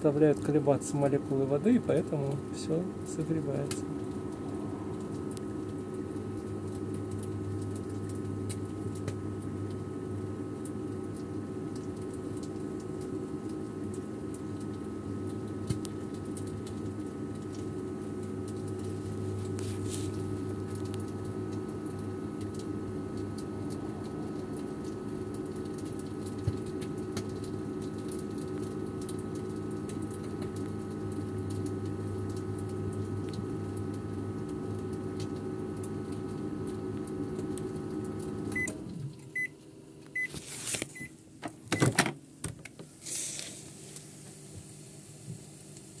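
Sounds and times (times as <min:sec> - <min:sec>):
microwave oven humming: 0:00.0 - 0:46.0
microwave door clicks and knocks: 0:41.4 - 0:42.7.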